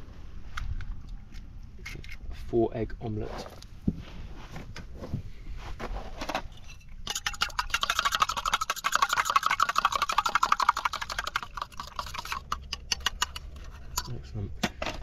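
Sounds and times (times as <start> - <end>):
fork beating eggs in metal mug: 7.0 - 14.2.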